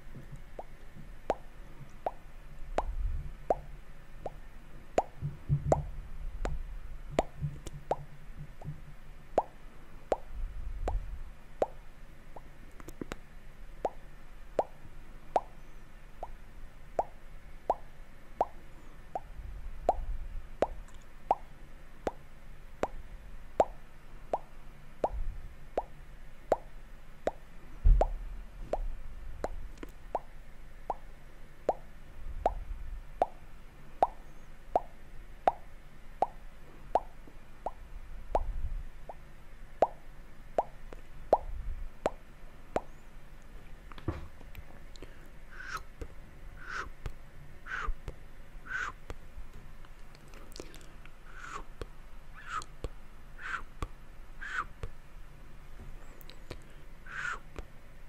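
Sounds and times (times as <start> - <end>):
wet mouth pops: 1.3 - 2.2, 2.8 - 4.4, 5.0 - 6.6, 7.2 - 8.8, 9.4 - 10.3, 12.4 - 13.2, 13.8 - 14.0, 17.0 - 18.6, 19.9 - 21.5, 28.0 - 30.3, 40.6 - 42.2, 45.0 - 49.2, 50.2 - 54.9
muffled bumps: 5.2 - 5.9
loud thump: 44.1 - 44.4.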